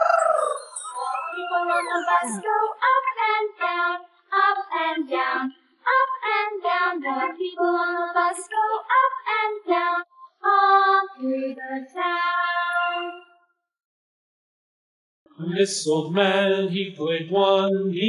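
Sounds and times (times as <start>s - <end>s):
child-like voice singing: 0.0s - 13.2s.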